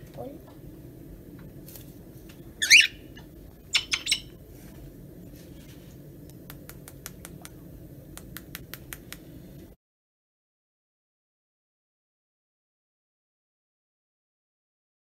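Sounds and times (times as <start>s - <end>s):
steady low hum: 0.0s - 9.8s
cockatiel calling: 2.6s - 4.3s
cockatiel chirps: 2.6s - 4.3s.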